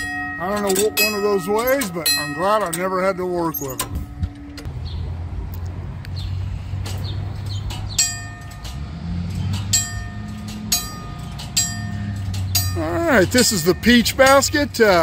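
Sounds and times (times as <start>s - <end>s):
crossing signal gong clanging: 0.0s - 4.7s, 7.9s - 15.0s.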